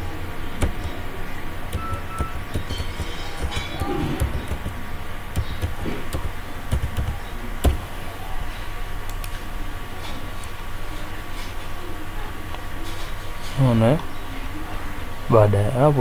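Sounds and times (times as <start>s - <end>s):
computer keyboard typing: 0.6s - 1.0s, 1.6s - 7.9s.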